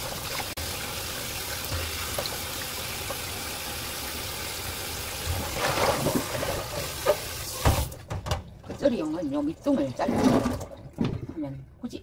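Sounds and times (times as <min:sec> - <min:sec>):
tap water running into metal bowl: 0:00.0 - 0:07.9.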